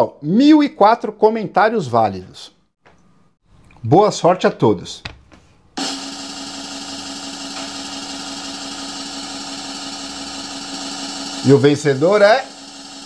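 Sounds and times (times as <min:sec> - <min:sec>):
power tool motor running: 0:05.8 - 0:13.0.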